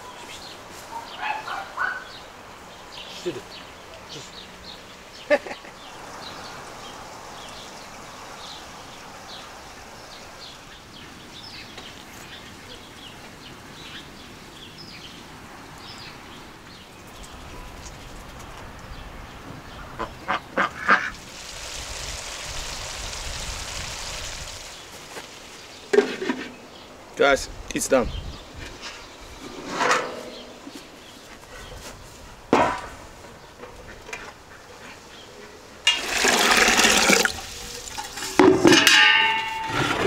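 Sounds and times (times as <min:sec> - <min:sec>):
small birds chirping: 0:00.0 - 0:29.6, 0:30.2 - 0:32.5
steady hiss: 0:21.0 - 0:27.8.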